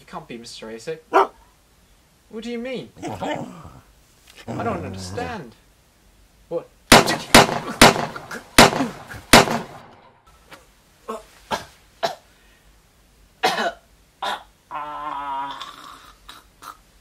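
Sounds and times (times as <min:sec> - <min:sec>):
loud gunshot bangs: 0:06.9 - 0:10.0
man coughing and groaning: 0:07.6 - 0:09.3, 0:11.1 - 0:12.2, 0:13.4 - 0:14.5.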